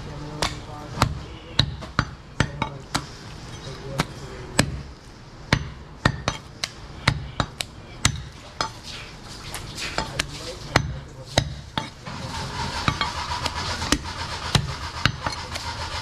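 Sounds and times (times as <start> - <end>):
cleaver chopping meat on wood: 0.3 - 3.1, 3.9 - 4.9, 5.5 - 8.8.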